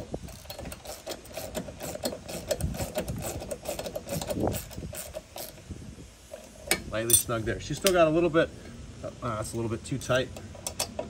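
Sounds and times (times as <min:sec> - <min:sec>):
hand ratchet clicking: 0:00.0 - 0:05.6, 0:10.0 - 0:11.0.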